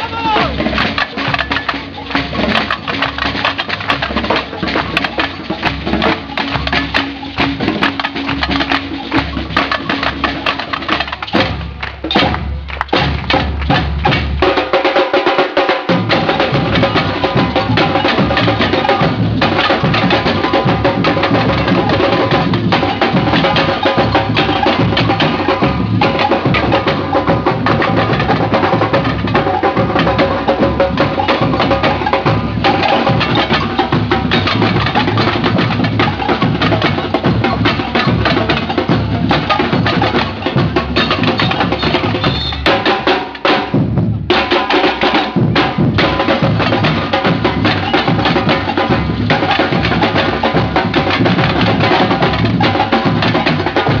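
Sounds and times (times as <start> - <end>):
drum band playing: 0.0 - 54.0.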